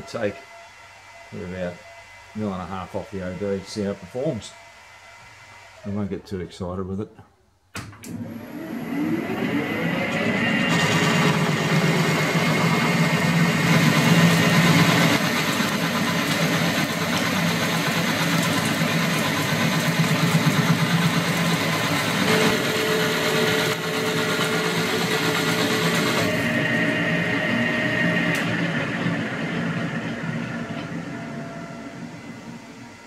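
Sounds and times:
metal lathe cutting: 0:08.6 - 0:33.0
faint whine: 0:26.4 - 0:33.0.

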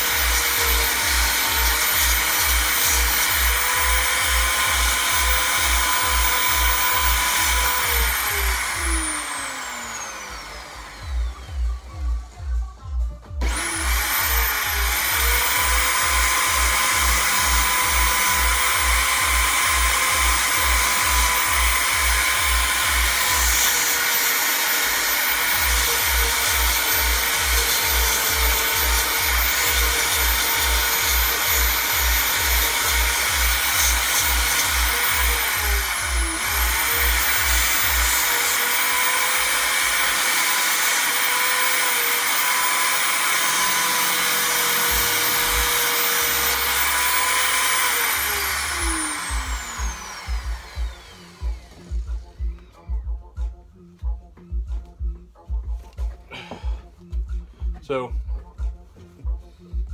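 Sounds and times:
power sanding tool whining: 0:00.0 - 0:12.1, 0:13.3 - 0:52.9
music beat: 0:11.0 - 0:23.0, 0:48.6 - 0:59.9.

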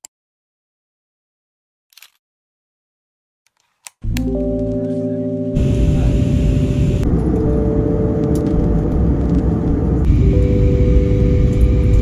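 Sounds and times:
music of held chords: 0:04.0 - 0:12.0
low rumble of vehicle: 0:05.6 - 0:12.0.

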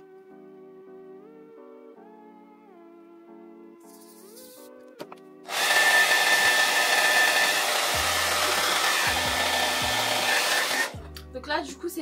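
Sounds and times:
soft background music: 0:00.0 - 0:12.0
hair dryer blowing: 0:05.5 - 0:11.0.

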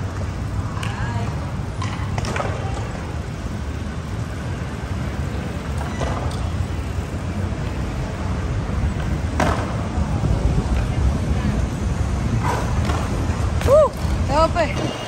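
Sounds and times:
low rumbling outdoor background noise: 0:00.0 - 0:15.0.

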